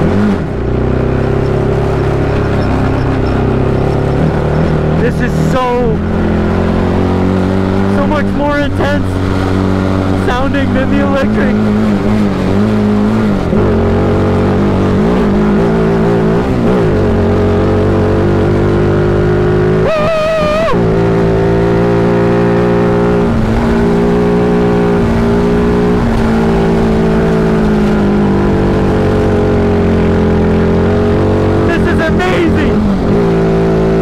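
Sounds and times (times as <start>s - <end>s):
single-cylinder engine running hard: 0.0s - 34.0s.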